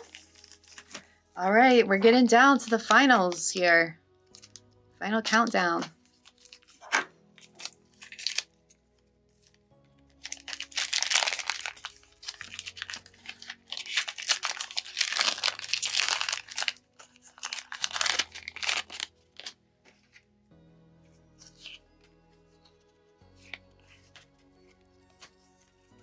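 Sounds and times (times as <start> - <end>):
card packaging crinkling and tearing: 0.0 - 1.2, 5.9 - 8.7, 10.1 - 19.6, 21.4 - 21.8
quiet background music: 0.0 - 26.0.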